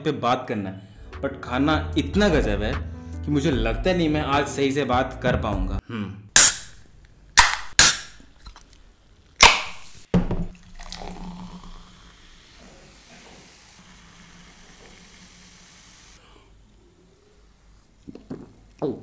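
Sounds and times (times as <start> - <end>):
soft-drink cans cracked open: 7.4 - 8.8, 9.4 - 10.0
cola fizzing in a glass: 10.5 - 16.2.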